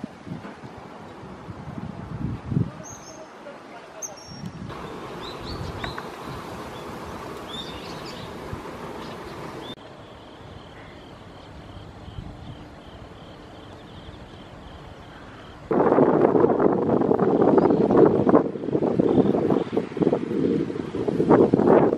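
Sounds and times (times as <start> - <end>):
high bird chirps: 4.0 - 6.9, 7.5 - 8.4.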